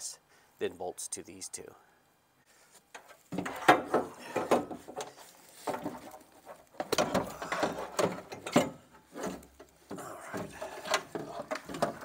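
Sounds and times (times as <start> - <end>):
metal clattering and scraping: 3.0 - 12.0.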